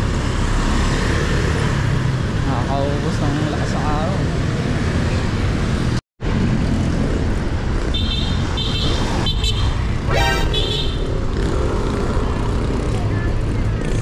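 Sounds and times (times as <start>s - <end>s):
road traffic rumble: 0.0s - 14.0s
vehicle horn toot: 8.0s - 11.1s.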